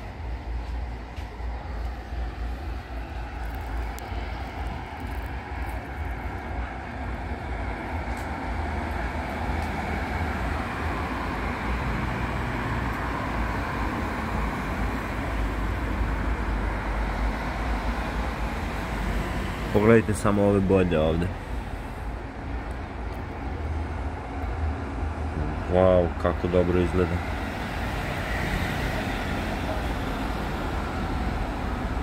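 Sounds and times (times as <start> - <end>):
unsteady low rumble: 0.0 - 11.6.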